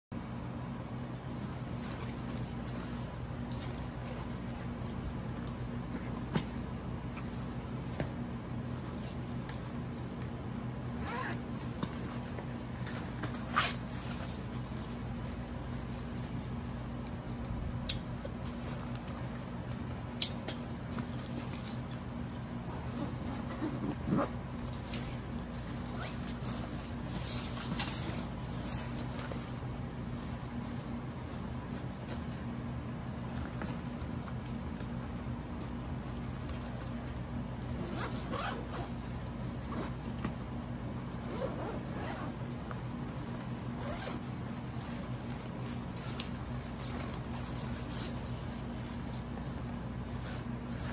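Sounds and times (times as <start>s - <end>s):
steady low hum: 0.2s - 50.9s
zipper rasping open: 11.0s - 11.4s, 22.7s - 24.4s, 25.9s - 27.5s, 37.7s - 38.9s, 41.2s - 42.4s, 43.8s - 44.3s
fabric rustling: 20.8s - 40.2s.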